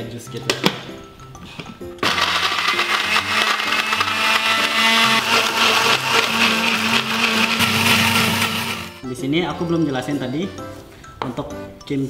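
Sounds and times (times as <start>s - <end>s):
electric blender running: 2.0s - 9.0s.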